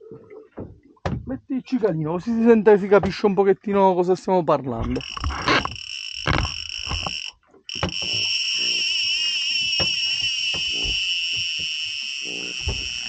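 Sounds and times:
fishing reel clicker buzzing: 5.0s - 13.0s.

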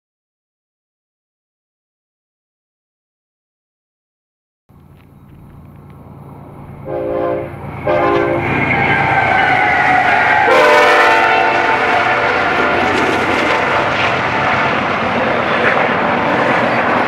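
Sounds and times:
diesel engines rumbling: 4.7s - 17.0s
train wheels rumbling: 4.7s - 17.0s
locomotive horn blasts: 6.8s - 13.0s.

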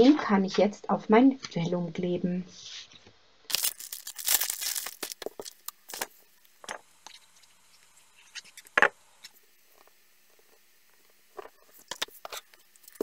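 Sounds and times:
plastic sleeve crinkling: 3.5s - 8.7s, 9.6s - 13.0s
paper and card rustling: 3.5s - 8.8s.

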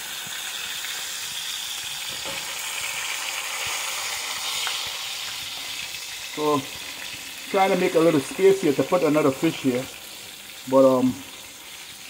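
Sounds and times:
fish deep-frying in hot oil: 0.0s - 12.0s.

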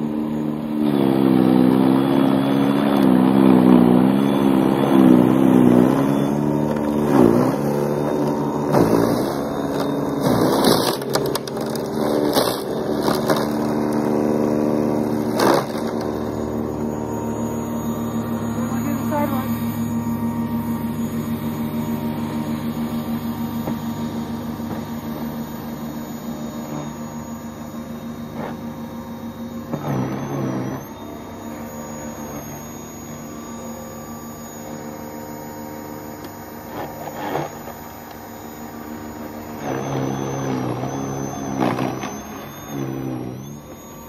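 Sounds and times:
snowblower motor and auger hum: 0.0s - 44.0s
snowblower throwing snow: 0.7s - 17.7s, 39.6s - 43.7s.

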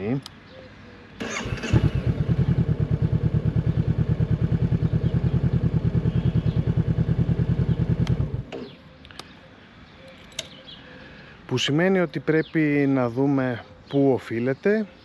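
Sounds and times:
motorcycle starter cranking: 1.2s - 2.5s
motorcycle engine idling: 1.2s - 8.8s.

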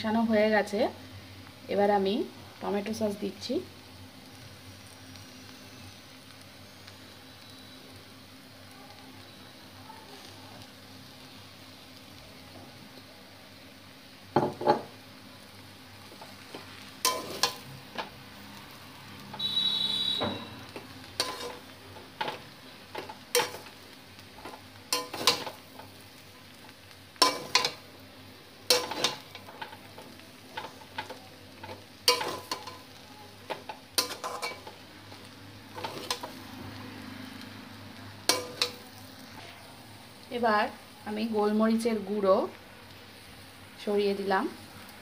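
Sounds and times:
low steady sizzle: 0.0s - 45.0s
metal spatula scraping wok: 16.2s - 18.1s, 20.7s - 23.8s, 24.4s - 25.9s, 27.2s - 27.8s, 28.7s - 34.8s, 35.7s - 36.5s, 38.2s - 39.6s.

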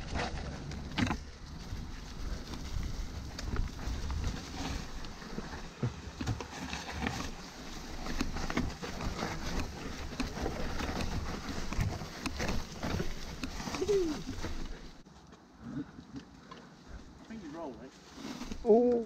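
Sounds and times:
bike knocking and rattling: 0.0s - 15.0s
bike tyres on dirt and leaves: 0.0s - 19.0s.

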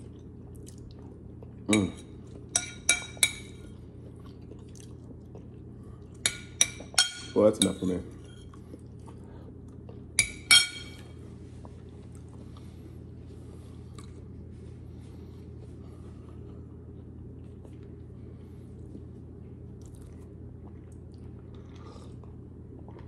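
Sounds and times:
steady low hum: 0.0s - 23.0s
spoon clinking on ceramic bowl: 1.7s - 3.7s, 6.2s - 8.4s, 10.2s - 11.0s.

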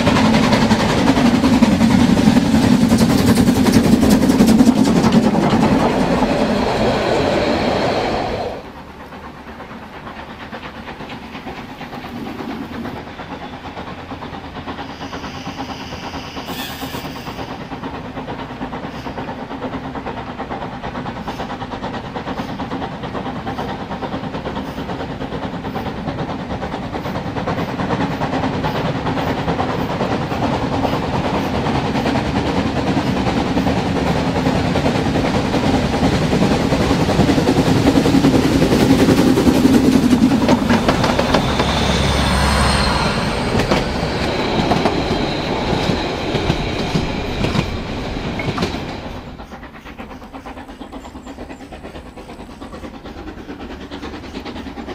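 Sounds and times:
model train wheel-on-rail rumble: 0.0s - 54.9s
faint high squeal: 14.8s - 17.7s, 41.2s - 46.1s.

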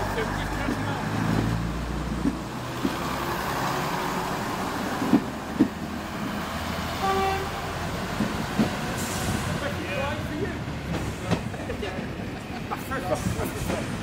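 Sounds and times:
diesel engines droning: 0.0s - 14.0s
train horn toot: 7.0s - 7.7s.

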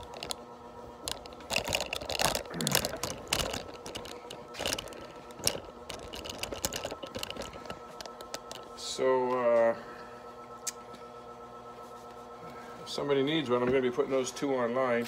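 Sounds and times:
faint steady hum: 0.0s - 15.0s
handling clicks and knocks: 1.0s - 8.7s.

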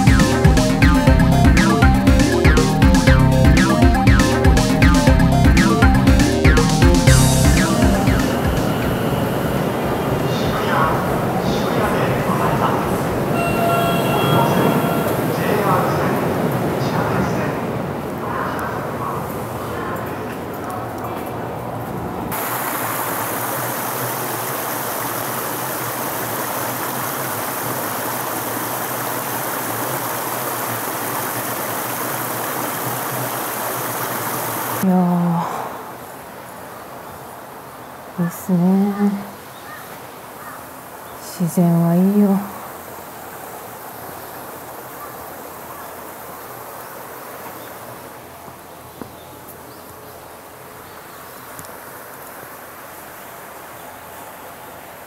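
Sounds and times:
river rushing over stones: 22.3s - 41.2s, 41.9s - 55.0s
insects chirring: 22.4s - 34.8s.

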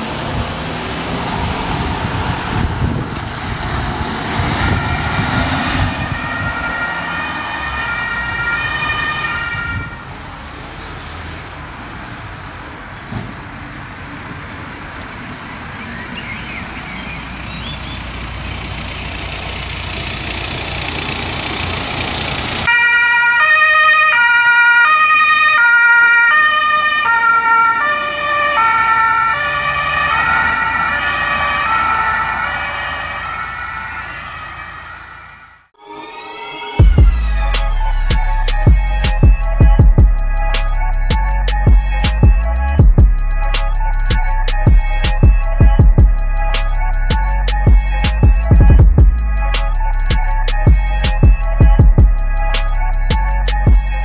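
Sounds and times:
car engine pulling away: 0.0s - 9.3s, 10.0s - 22.7s
two-tone siren: 4.3s - 10.2s, 22.7s - 54.0s.

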